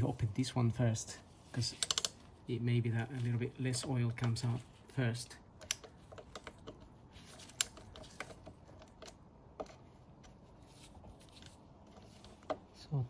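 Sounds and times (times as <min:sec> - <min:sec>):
faint metallic clicks and taps: 0:05.5 - 0:09.9.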